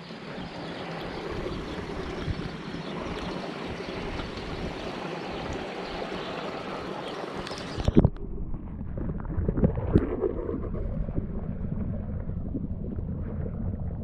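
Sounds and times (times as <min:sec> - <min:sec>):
running water rushing: 0:00.0 - 0:08.2.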